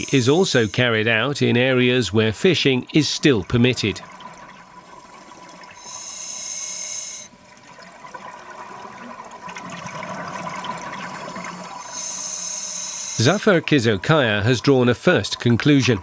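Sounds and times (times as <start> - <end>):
diver breathing through regulator: 5.8 - 7.3, 11.2 - 13.4.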